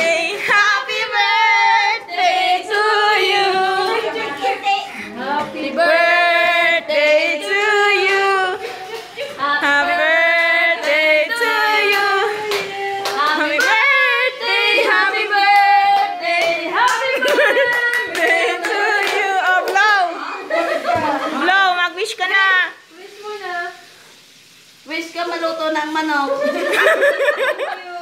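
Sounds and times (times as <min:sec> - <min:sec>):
people singing birthday song: 0:00.0 - 0:21.6, 0:26.4 - 0:27.9
hands clapping along: 0:10.8 - 0:14.1, 0:15.4 - 0:20.0.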